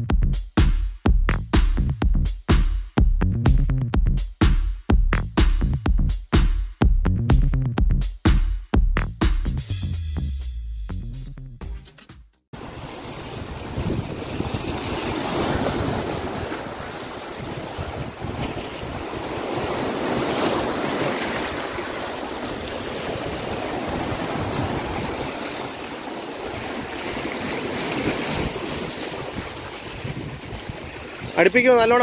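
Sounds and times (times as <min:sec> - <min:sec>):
sea surf among boulders: 0:12.6 - 0:32.0
wind buffeting microphone: 0:12.6 - 0:32.0.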